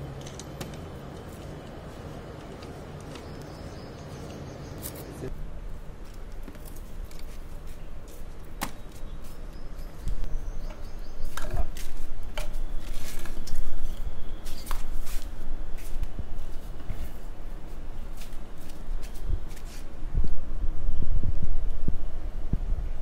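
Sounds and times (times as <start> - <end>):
wind rumble on microphone: 13.4 - 23.0.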